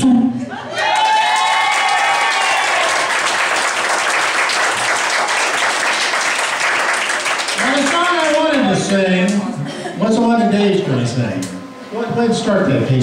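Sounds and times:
audience applauding: 0.7 - 9.4.

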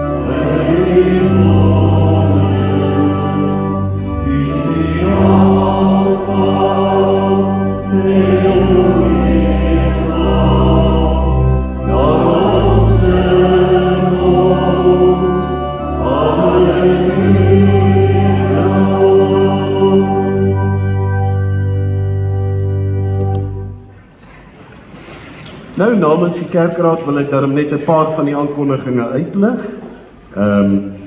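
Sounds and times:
congregation singing a hymn: 0.0 - 23.8
organ playing: 0.0 - 24.2.

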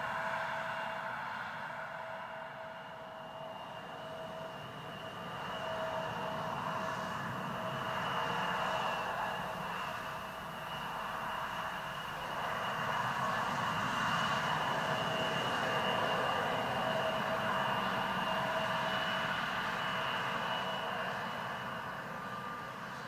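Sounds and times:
jet engines whining: 0.0 - 23.0.

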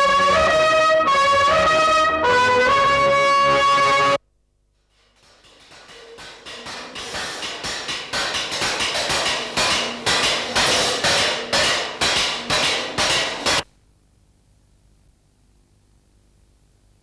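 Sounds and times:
hammers striking metal on anvils: 4.9 - 13.7.

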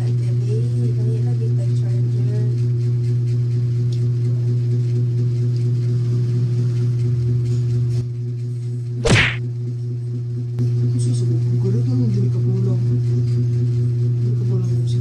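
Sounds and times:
steady low hum: 9.0 - 9.4.

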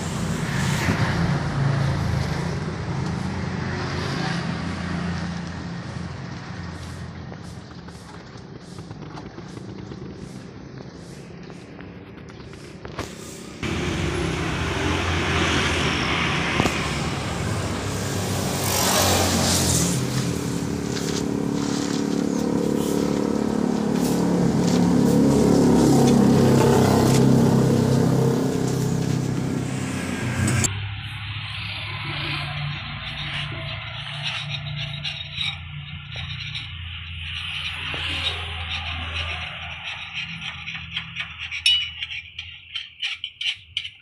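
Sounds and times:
vehicle engine running: 4.7 - 42.1.

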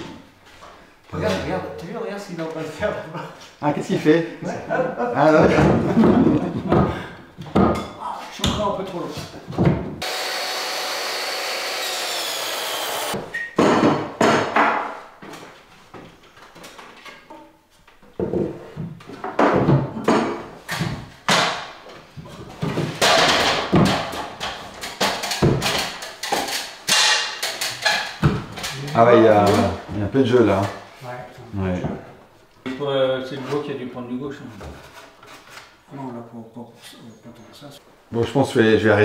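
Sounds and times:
power tool cutting wood: 10.0 - 13.2.

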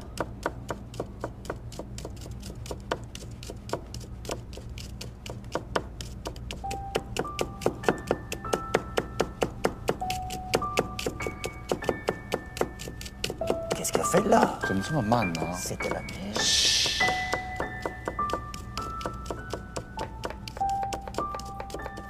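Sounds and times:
knife chopping on wooden board: 0.0 - 14.0, 15.8 - 22.0
background music of sustained notes: 6.6 - 22.0.

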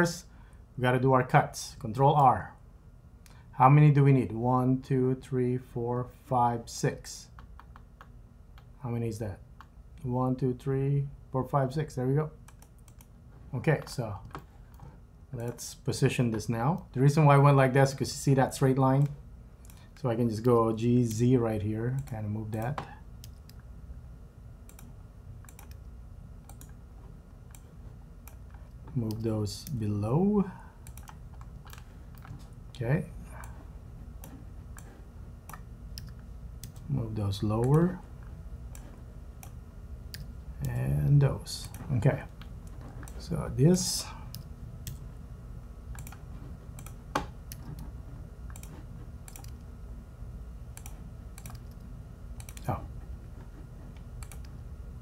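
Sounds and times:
faint low hum: 0.0 - 55.0
keyboard and mouse clicks: 7.3 - 8.7, 12.4 - 13.1, 24.7 - 26.8, 30.8 - 32.5, 34.2 - 36.8, 45.9 - 46.2, 46.8 - 47.9, 48.5 - 49.7, 50.7 - 52.8, 53.9 - 54.6.

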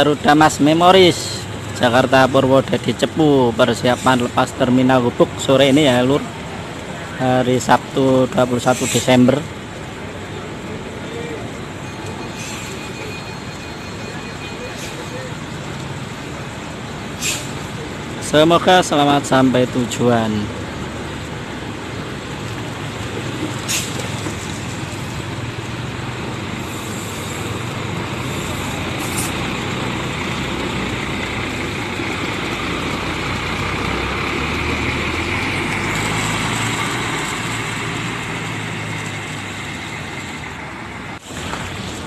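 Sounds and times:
coach diesel engine pulling away: 11.4 - 42.0
brief high hisses: 17.2 - 17.6.

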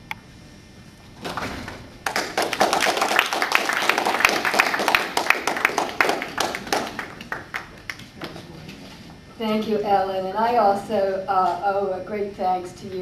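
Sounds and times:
audience applauding: 2.0 - 8.7.

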